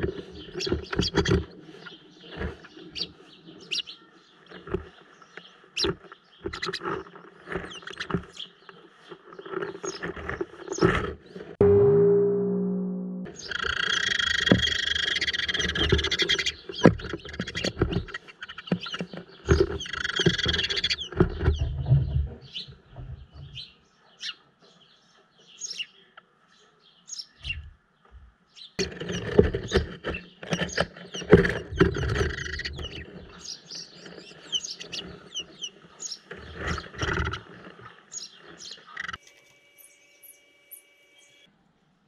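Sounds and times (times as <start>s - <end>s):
birds scrabbling on cardboard: 0.0s - 11.6s, 14.0s - 23.6s, 28.8s - 39.3s
sparrows chirping: 0.0s - 11.6s, 13.3s - 41.4s.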